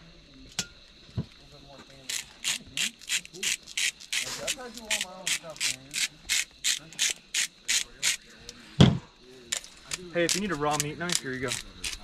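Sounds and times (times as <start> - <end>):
spice grinder crunching: 2.1 - 7.9.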